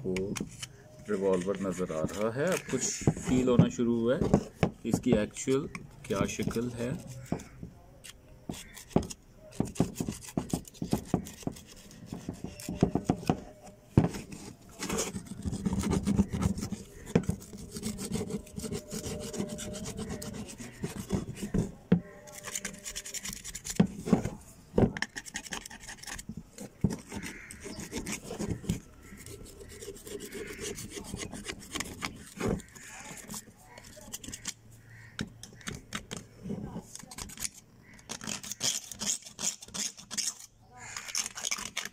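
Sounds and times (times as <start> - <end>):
metal scraper scraping metal: 0.2 - 24.4, 25.0 - 41.9
sandpaper rubbing: 0.3 - 3.5, 8.5 - 24.3, 25.0 - 34.6, 37.0 - 41.9.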